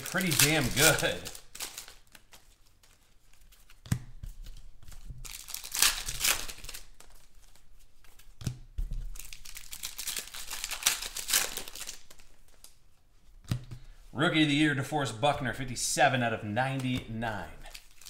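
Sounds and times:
foil pack tearing and crinkling: 0.0s - 2.4s, 5.2s - 7.1s, 9.1s - 12.3s, 17.7s - 18.0s.

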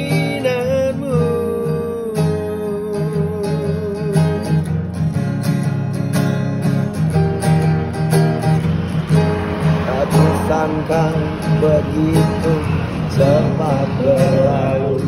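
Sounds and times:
man singing with vibrato: 0.0s - 4.9s, 9.6s - 15.0s
acoustic guitar strumming: 0.0s - 15.0s.

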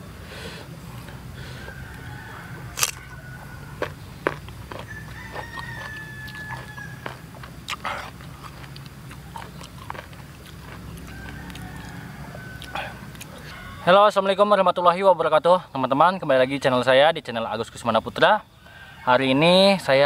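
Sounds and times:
chewing: 2.5s - 13.6s
crunchy mango bites: 2.6s - 13.5s.

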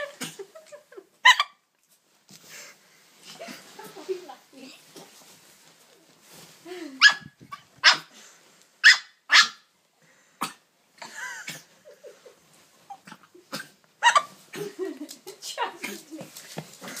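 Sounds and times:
dog coughing: 13.5s - 13.8s.

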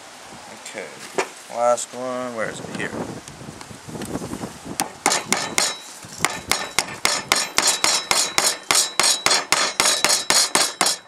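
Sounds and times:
hammer tapping nail through metal: 4.8s - 11.0s.

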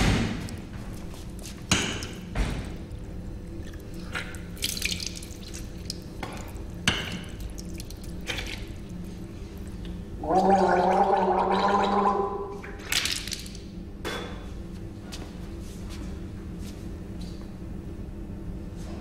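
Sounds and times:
water splashing at sink: 3.6s - 9.0s
man gargling: 10.2s - 12.6s.

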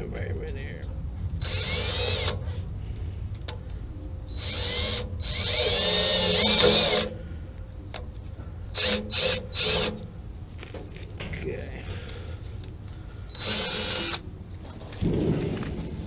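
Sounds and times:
cordless drill whining: 1.4s - 2.4s, 4.3s - 7.2s, 8.7s - 10.0s, 13.3s - 14.2s.

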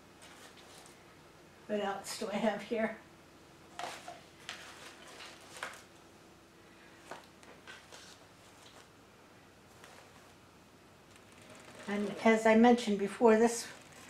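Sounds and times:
artificial flowers rustling: 3.7s - 6.1s, 9.6s - 14.0s.

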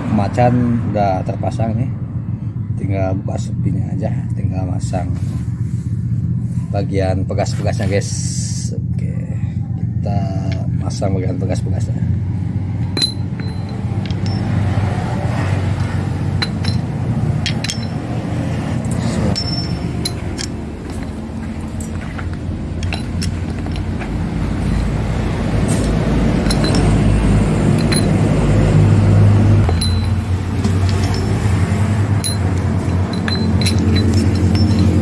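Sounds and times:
low mechanical hum: 5.0s - 35.0s
metallic clinks of parts handled: 12.8s - 14.8s, 15.6s - 28.8s, 29.6s - 35.0s.

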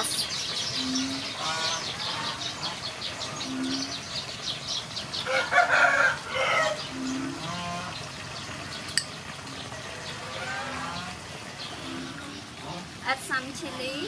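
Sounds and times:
chicken calls: 5.0s - 8.6s
rooster crowing: 5.2s - 6.8s.

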